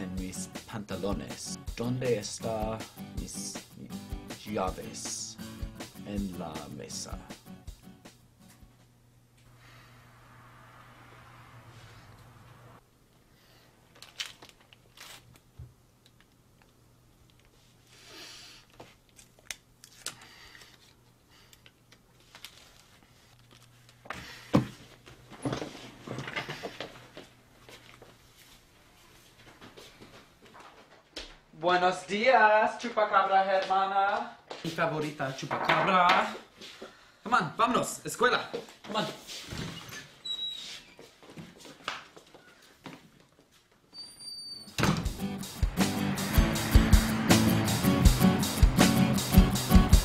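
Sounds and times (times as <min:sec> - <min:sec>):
background music: 0:00.0 - 0:08.7, 0:44.8 - 0:50.0
loud thump: 0:44.8 - 0:45.2.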